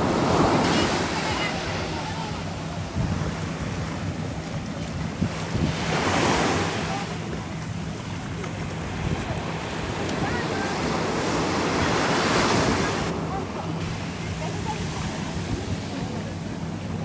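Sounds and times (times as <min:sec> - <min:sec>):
wind buffeting microphone: 0:00.0 - 0:13.1
surf washing onto beach: 0:00.0 - 0:17.0.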